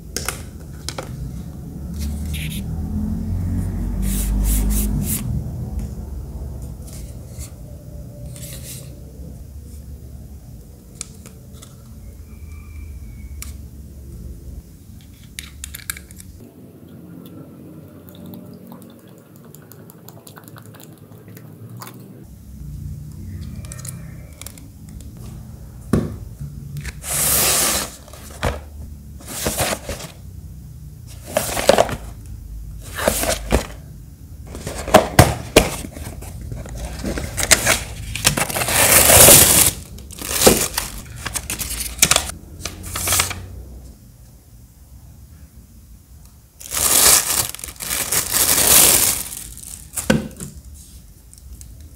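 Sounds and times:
packaging rustling and crinkling: 29.2s - 30.2s, 31.2s - 32.1s, 34.5s - 42.3s, 46.6s - 50.4s.

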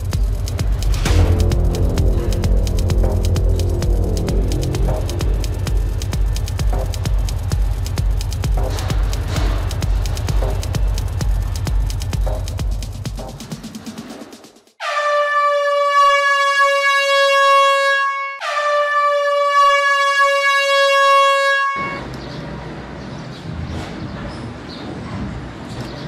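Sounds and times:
air horn blasts: 1.0s - 6.1s, 14.8s - 22.1s.

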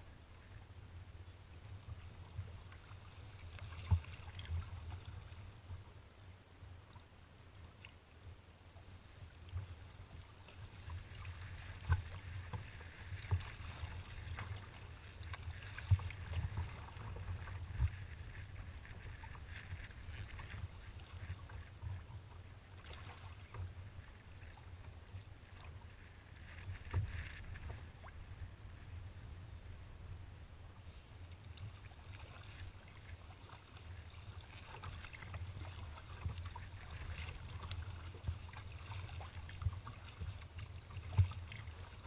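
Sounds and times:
water slapping kayak hull: 1.6s - 5.9s, 9.0s - 30.0s, 30.9s - 42.0s
steady low rumble: 27.4s - 31.7s.

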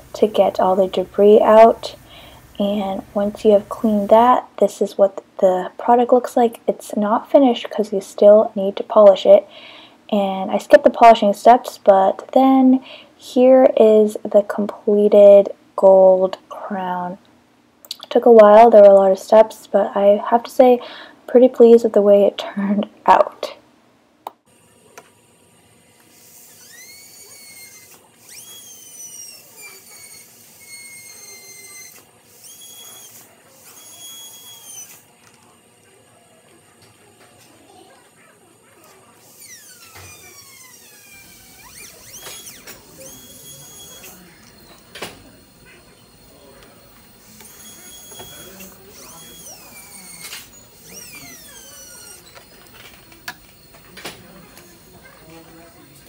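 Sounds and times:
dental drill whining: 0.0s - 4.4s, 25.9s - 56.0s
burst of hiss: 1.9s - 2.6s.

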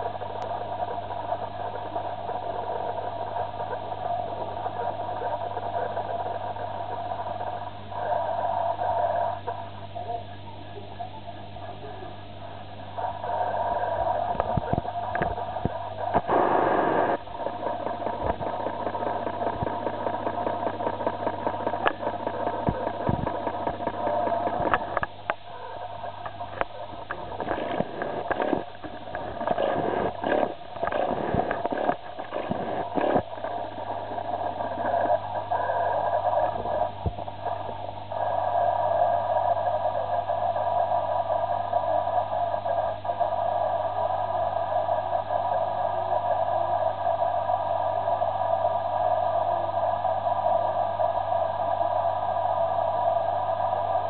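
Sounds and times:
aquarium equipment humming: 0.0s - 54.0s.

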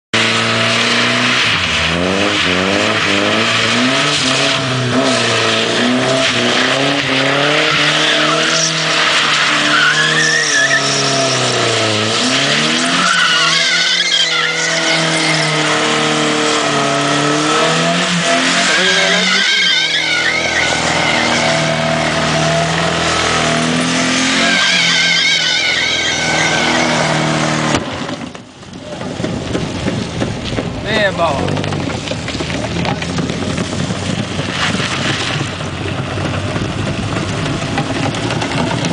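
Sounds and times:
car engine revving: 0.1s - 38.9s
tyres squealing on tarmac: 1.2s - 27.7s.

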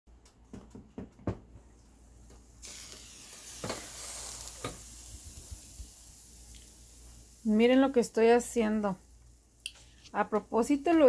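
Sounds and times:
steam hissing and batter sizzling: 2.2s - 11.0s.

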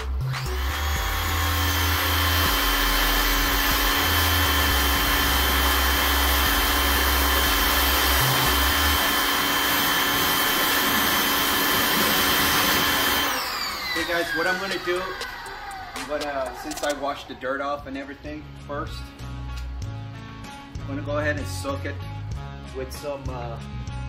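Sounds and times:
pressure washer motor whining: 0.0s - 17.8s.

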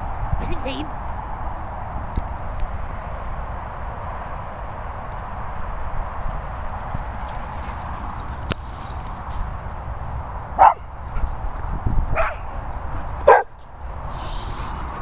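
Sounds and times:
dog barking: 10.6s - 10.9s, 12.1s - 12.5s, 13.2s - 13.6s.

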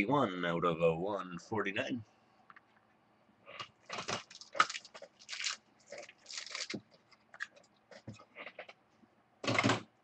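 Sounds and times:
trading cards rustling: 3.8s - 8.1s.

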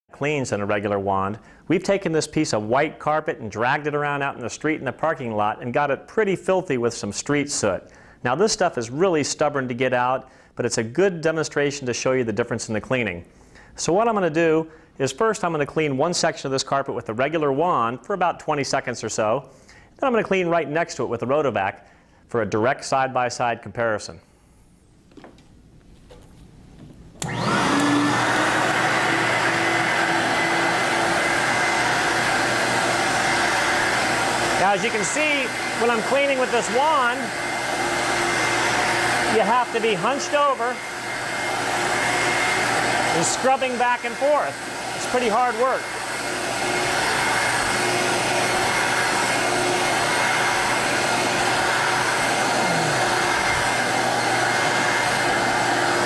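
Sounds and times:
carpet cleaner vacuum motor whining: 27.2s - 56.0s.

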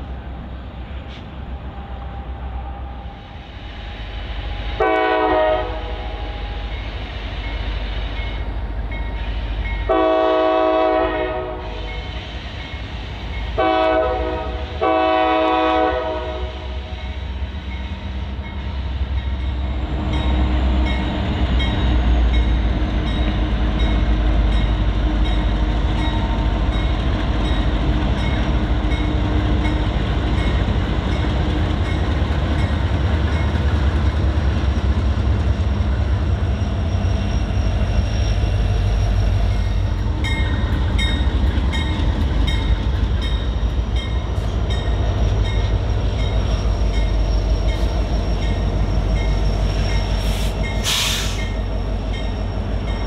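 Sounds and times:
locomotive air horn blasts: 4.8s - 6.4s, 9.9s - 11.9s, 13.6s - 16.8s
train wheels clacking on rails: 16.8s - 53.0s.

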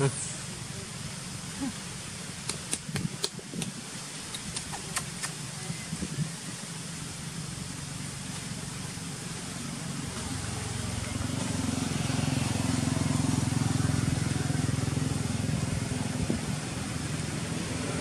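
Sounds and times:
background hiss: 0.0s - 18.0s
road traffic engine hum: 0.0s - 18.0s.

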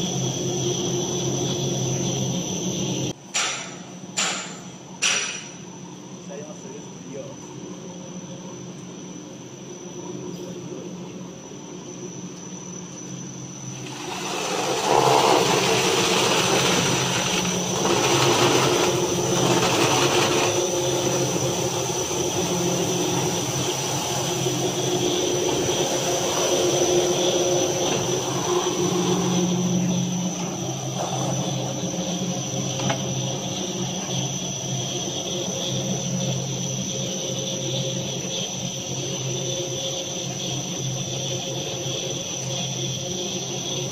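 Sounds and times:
motor and belt drive hum: 0.0s - 43.9s
high whine: 5.3s - 40.3s
sanding brushes rushing noise: 13.6s - 29.4s.

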